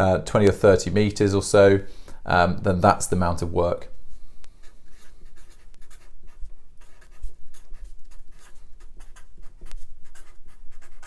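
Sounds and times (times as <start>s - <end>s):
marker pen writing on paper: 4.5s - 11.0s.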